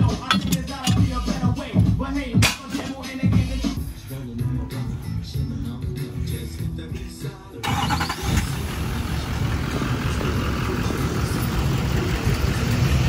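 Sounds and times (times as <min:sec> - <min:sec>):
hip-hop music: 0:00.0 - 0:07.7
pickup truck engine running: 0:07.7 - 0:13.0.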